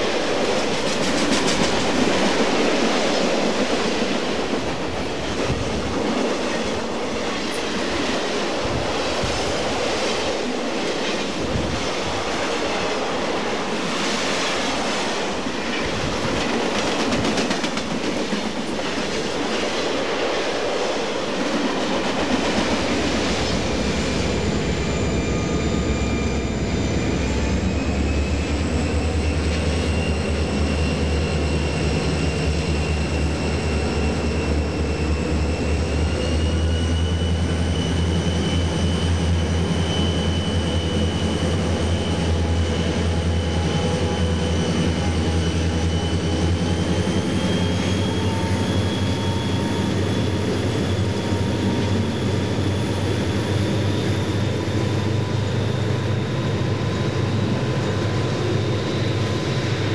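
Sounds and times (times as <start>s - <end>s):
diesel locomotive engine rumble: 0.0s - 59.9s
train wheels clacking over rail joints: 0.4s - 2.8s, 15.6s - 19.3s
high whine rising in pitch: 23.0s - 59.9s.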